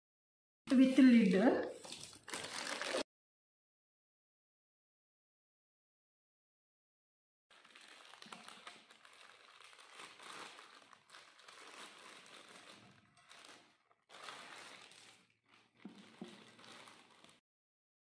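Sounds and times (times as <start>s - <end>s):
plastic bag crinkling: 0.7s - 3.1s, 7.5s - 17.4s.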